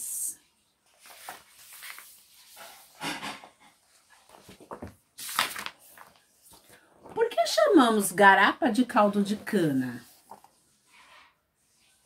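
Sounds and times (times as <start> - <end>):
paper pages turning: 0.8 - 3.0, 4.1 - 7.3, 9.2 - 12.0.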